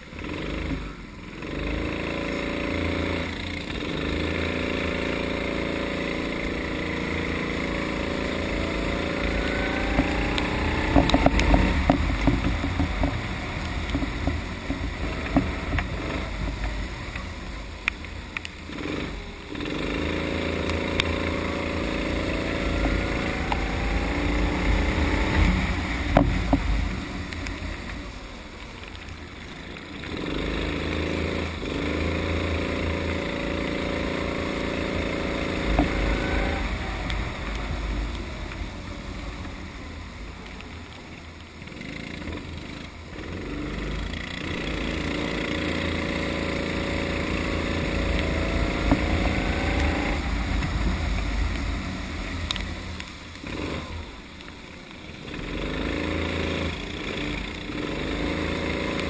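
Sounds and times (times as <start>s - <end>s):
kart engine revving: 0.0s - 59.0s.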